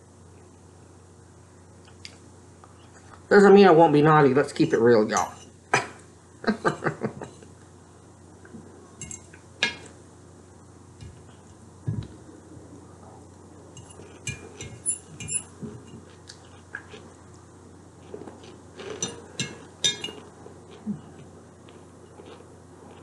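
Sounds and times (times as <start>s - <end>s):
tableware clinking: 5.2s - 5.5s, 9.0s - 9.9s, 13.8s - 16.0s, 18.9s - 20.3s
chewing: 15.9s - 17.4s, 18.0s - 23.0s.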